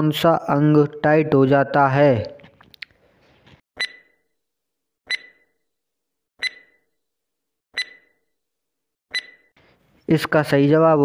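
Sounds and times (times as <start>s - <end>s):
countdown timer clicks with ringing tone: 3.8s - 4.1s, 5.1s - 5.5s, 6.4s - 6.8s, 7.8s - 8.1s, 9.1s - 9.5s.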